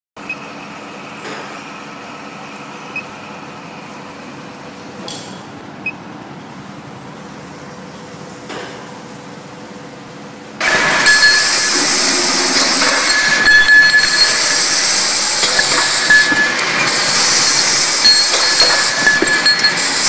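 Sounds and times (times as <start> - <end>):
machine humming: 10.0 - 20.0
short high keypad beeps: 11.0 - 16.7.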